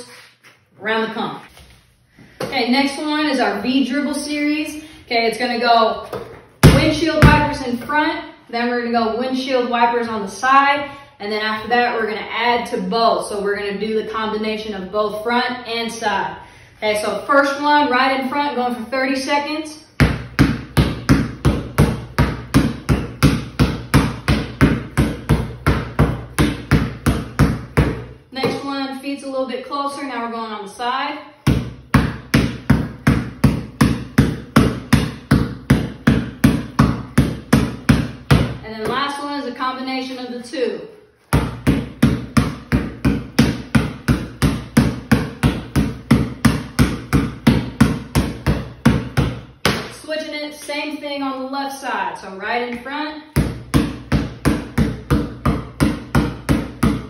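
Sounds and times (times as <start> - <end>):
basketball bouncing on concrete: 6.0 - 7.9, 20.0 - 28.8, 31.4 - 39.3, 41.3 - 50.0, 52.7 - 57.0.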